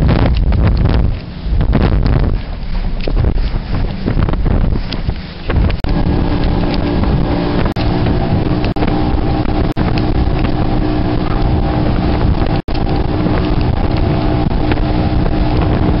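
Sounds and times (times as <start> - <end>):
outboard motor running: 0.0 - 16.0
rush of boat wake: 0.0 - 16.0
wind buffeting microphone: 0.0 - 16.0.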